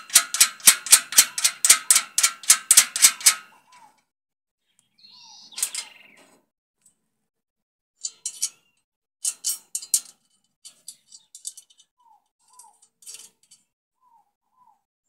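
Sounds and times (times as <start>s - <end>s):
nut and washers clinking on metal: 0.0s - 3.4s, 5.6s - 5.9s, 8.0s - 8.6s, 9.2s - 11.9s, 12.5s - 13.7s.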